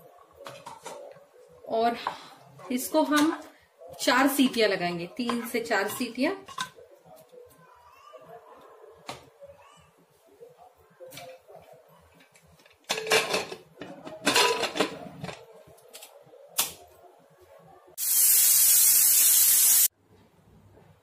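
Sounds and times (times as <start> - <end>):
pressure cooker whistle hissing steam: 18.0 - 19.9.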